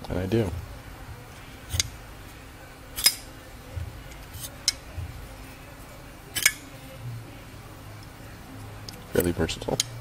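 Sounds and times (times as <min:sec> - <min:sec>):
folding knife blade clicking: 0:03.0 - 0:03.3, 0:06.4 - 0:06.6.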